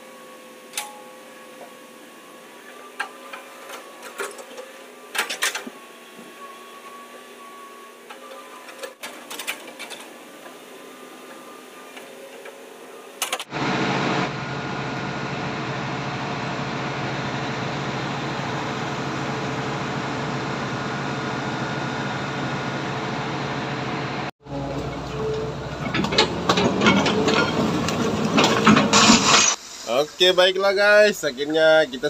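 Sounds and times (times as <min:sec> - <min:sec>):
excavator engine and hydraulic hum: 0:00.0 - 0:29.9
loud engine drone: 0:12.9 - 0:29.1
excavator bucket knocks and clanks: 0:25.8 - 0:29.2.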